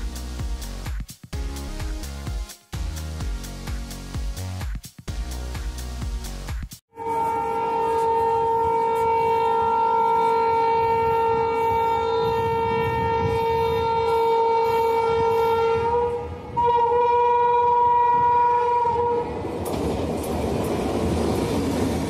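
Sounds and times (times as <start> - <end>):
train rumbling and clattering: 4.7 - 22.0
train horn blast: 6.9 - 19.4.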